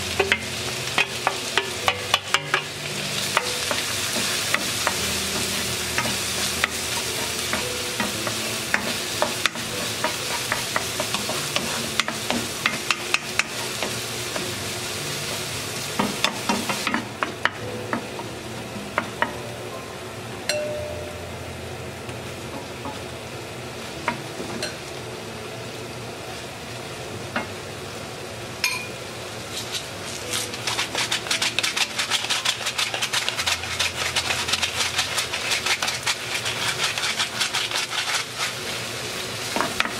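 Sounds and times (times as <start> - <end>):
onion sizzling in oil: 0.0 - 39.9
spatula scraping a pan: 3.6 - 14.0, 29.5 - 38.6.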